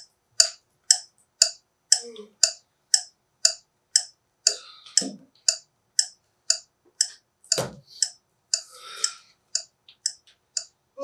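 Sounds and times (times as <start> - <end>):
clock ticking: 0.0 - 10.8
heavy thump: 7.6 - 7.8.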